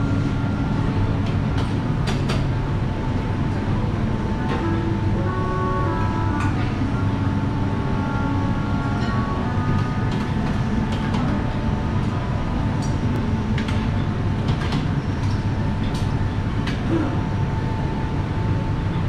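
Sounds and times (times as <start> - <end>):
low rumble of room noise: 0.0 - 19.0.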